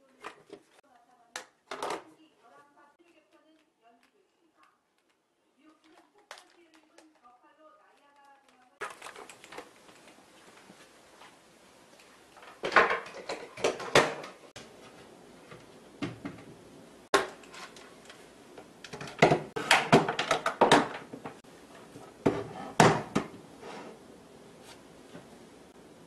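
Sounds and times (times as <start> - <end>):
items knocking on a shelf: 12.6 - 14.4, 16.0 - 16.5, 18.9 - 21.4, 22.2 - 23.4.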